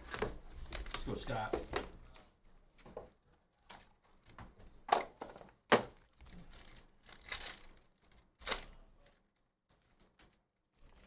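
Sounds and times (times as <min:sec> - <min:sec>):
foil pack tearing and crinkling: 0:06.3 - 0:08.8.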